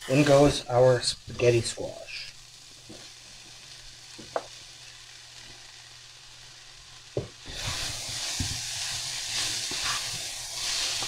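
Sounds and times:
food sizzling in a frying pan: 0.0 - 11.0
wooden spoon knocking on pan: 4.2 - 4.5, 7.2 - 7.4.

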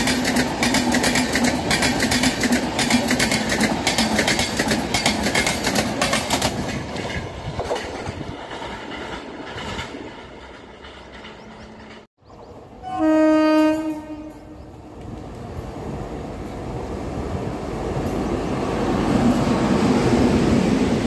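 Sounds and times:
train clattering: 0.0 - 12.6
rumble of oncoming train: 0.0 - 21.0
locomotive horn blast: 12.8 - 14.6.

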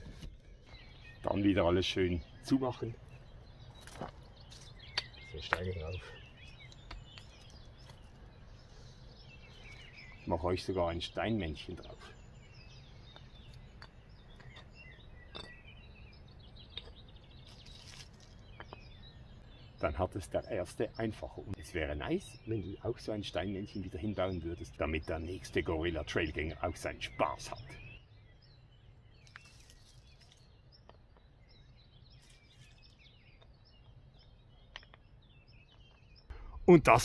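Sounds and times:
small birds chirping: 0.0 - 37.0
songbirds singing: 0.0 - 37.0
stones knocking together: 3.7 - 5.8, 6.4 - 8.2, 13.1 - 15.6, 16.7 - 18.9.

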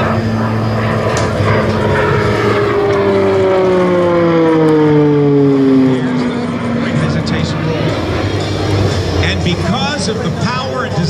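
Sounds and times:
turboprop plane droning overhead: 0.0 - 11.0.

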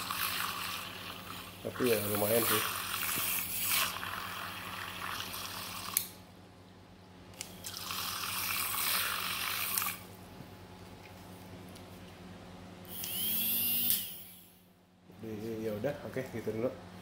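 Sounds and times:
milk frother whisking water: 0.0 - 6.1, 7.6 - 10.1.

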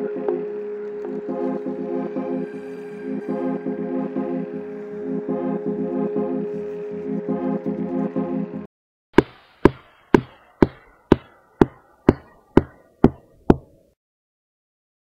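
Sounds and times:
music: 0.0 - 8.7
hard footsteps: 9.2 - 13.8.

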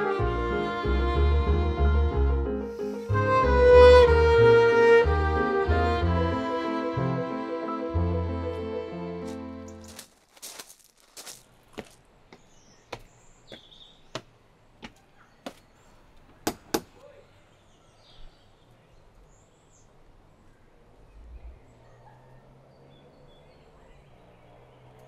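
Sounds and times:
footsteps walking: 9.2 - 15.7
birds chirping faintly: 11.2 - 25.0.

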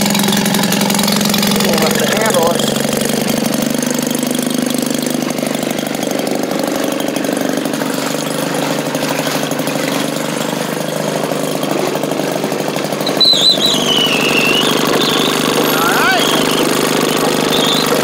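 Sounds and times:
small gasoline engine running: 0.0 - 18.0
water churning in tub: 0.0 - 18.0
high wavering squeal: 13.0 - 18.0.

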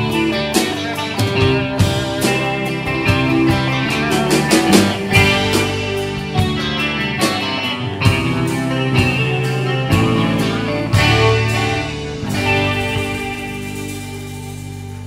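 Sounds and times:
drum and cymbal hits: 0.0 - 15.0
rock band playing: 0.0 - 15.0.

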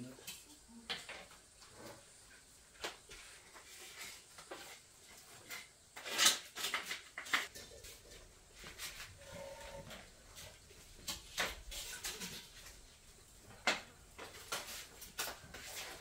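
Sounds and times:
spatula scraping and tapping wok: 1.0 - 12.9.

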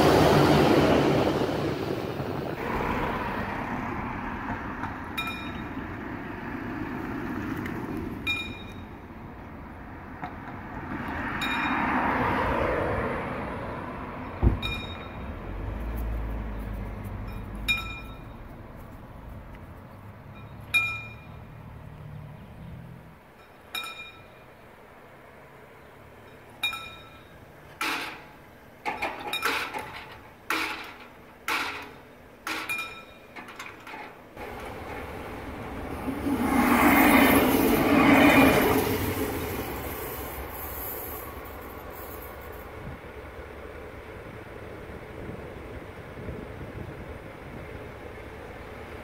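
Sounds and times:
broad rushing noise: 0.0 - 8.8, 34.4 - 47.8
level-crossing warning bell: 5.1 - 6.0, 8.2 - 9.2, 11.3 - 12.1, 14.6 - 15.6, 16.5 - 18.8, 20.3 - 21.6, 23.2 - 24.8, 26.2 - 35.2
metallic clanks: 14.5 - 15.4, 26.3 - 35.1.

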